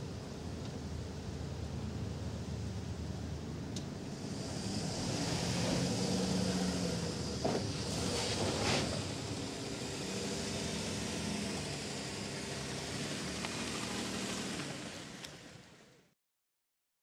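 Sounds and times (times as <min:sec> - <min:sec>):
suv engine driving past: 0:04.1 - 0:15.7.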